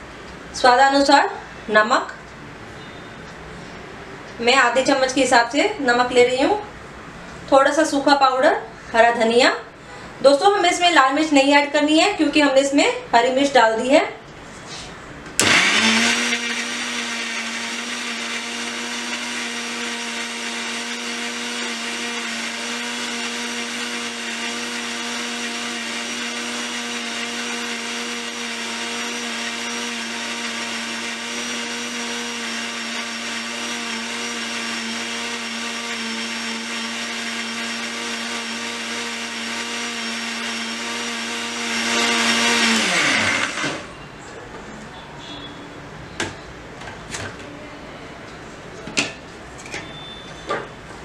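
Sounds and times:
mixer grinder motor whining: 15.4 - 43.9.

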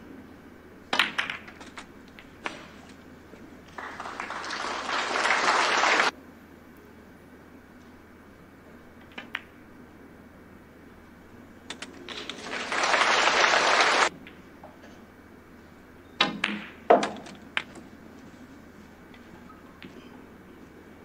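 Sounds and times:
snooker balls clicking: 0.9 - 3.1, 3.7 - 6.1, 9.0 - 9.6, 11.7 - 14.8, 16.3 - 17.9, 19.1 - 20.1
audience applause: 3.7 - 6.1, 12.1 - 14.1.

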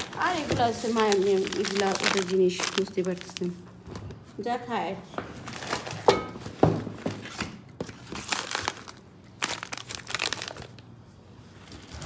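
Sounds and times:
packaging crinkling and rustling: 0.0 - 4.1, 5.3 - 6.2, 7.0 - 11.0.

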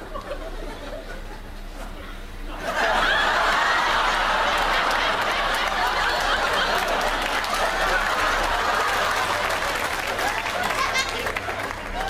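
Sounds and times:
audience laughing: 0.0 - 1.6, 2.4 - 12.0
audience clapping: 2.8 - 12.0.

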